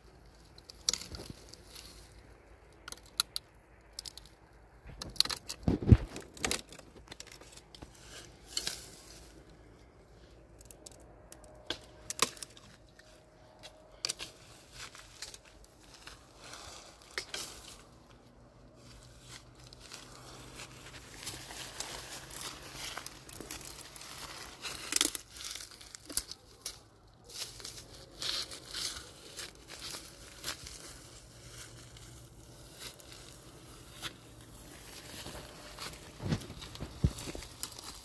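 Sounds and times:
crinkling and rustling: 0.0 - 38.0.

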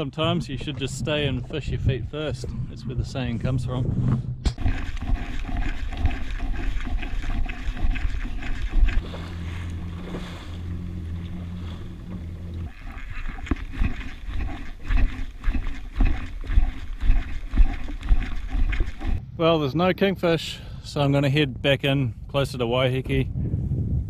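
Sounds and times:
wind buffeting microphone: 0.0 - 19.2, 21.6 - 24.0
jet ski engine running: 4.6 - 19.2
water splashing: 4.6 - 19.2.

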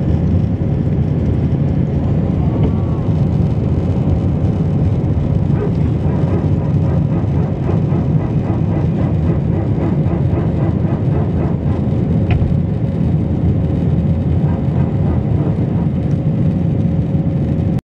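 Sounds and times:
jet engine and air rumble: 0.0 - 17.8.

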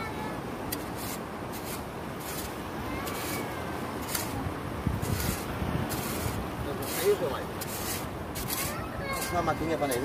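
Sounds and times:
shovel scraping into sand: 0.7 - 10.0.

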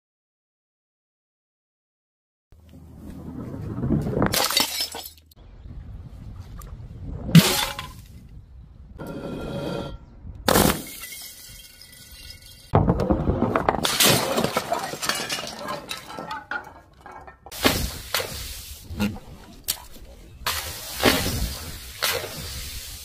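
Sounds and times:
glass smashing: 4.3 - 5.3, 10.5 - 12.7, 13.8 - 18.4
glass crunching: 4.3 - 5.4, 13.8 - 17.6
glass shards tinkling: 11.0 - 12.7.

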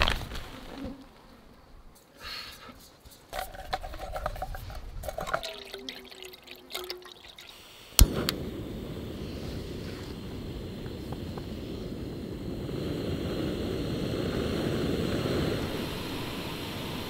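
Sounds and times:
water pouring into cup: 4.0 - 7.7
gas burner hissing: 7.4 - 17.0
stove igniter click: 8.0 - 8.9.

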